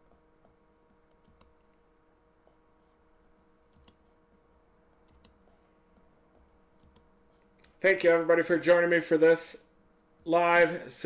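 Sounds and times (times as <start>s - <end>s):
faint electrical hum: 0.0s - 11.0s
computer clicks: 4.9s - 5.4s.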